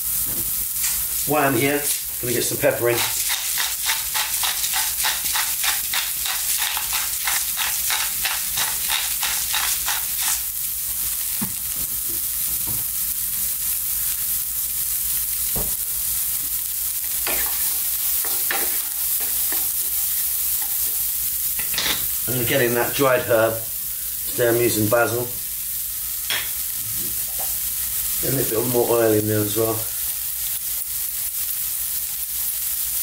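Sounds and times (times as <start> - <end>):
onions sizzling in frying pan: 0.0 - 33.0
pepper mill grinding: 0.8 - 10.6, 17.0 - 21.9
wooden spatula scraping pan: 2.3 - 10.4.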